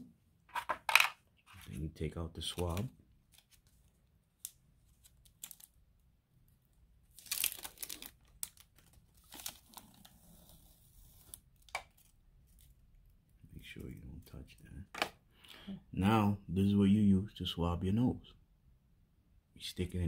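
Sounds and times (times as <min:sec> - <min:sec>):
wrapper tearing and crinkling: 0:04.4 - 0:05.8, 0:07.1 - 0:12.7.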